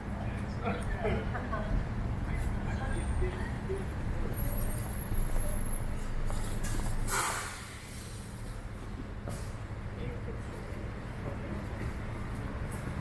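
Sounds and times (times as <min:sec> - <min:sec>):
vehicle engine rumbling: 0:00.0 - 0:13.0
short hiss: 0:07.1 - 0:08.3.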